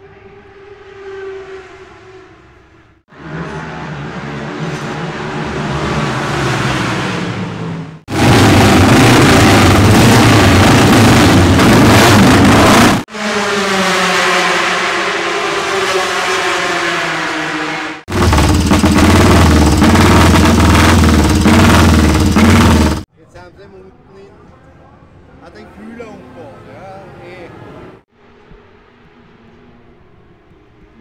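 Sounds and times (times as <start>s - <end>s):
motorcycle engines revving: 3.1s - 23.1s.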